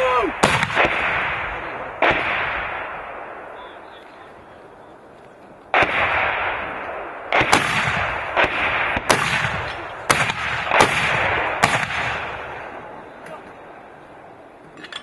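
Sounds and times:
mortar fire booms: 0.0 - 3.9, 5.7 - 12.9
rolling echo across hills: 0.0 - 15.0.

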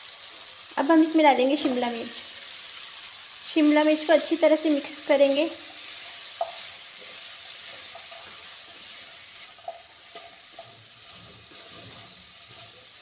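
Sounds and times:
vegetables sizzling in oil: 0.0 - 13.0
spatula scraping a pan: 5.8 - 13.0.

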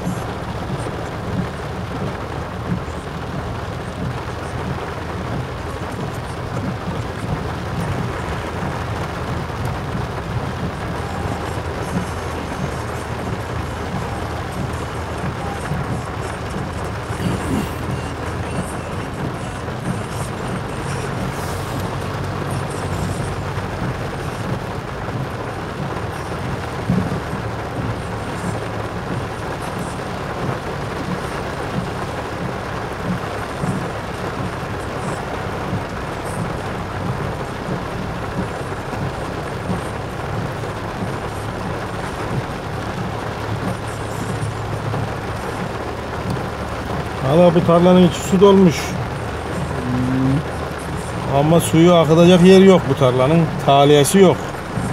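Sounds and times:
road noise: 0.0 - 54.9
vehicle engine hum: 0.0 - 54.9.

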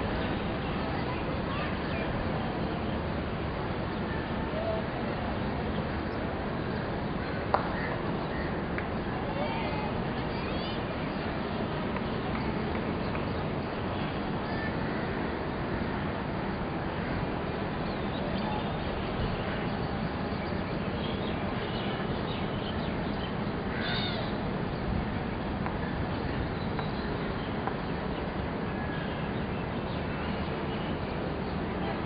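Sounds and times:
low open-air background noise: 0.0 - 32.0
faint bird calls: 21.0 - 24.4.

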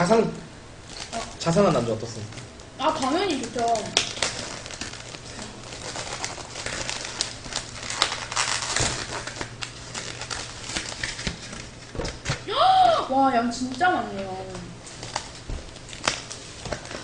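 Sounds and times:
plastic wrap crinkling: 0.8 - 12.5, 13.6 - 17.0.

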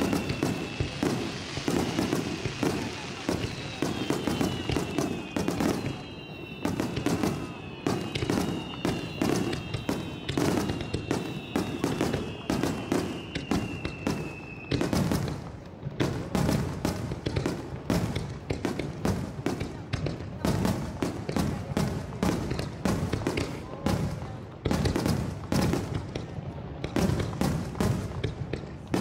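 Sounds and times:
fireworks whistles falling in pitch: 0.0 - 15.5
fireworks bangs and crackles: 0.0 - 29.0.

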